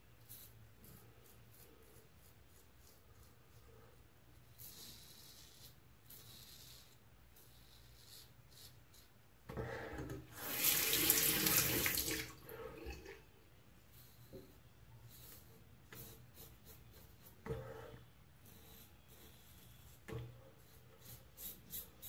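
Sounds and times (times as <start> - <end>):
tap water running into sink: 10.3 - 13.1.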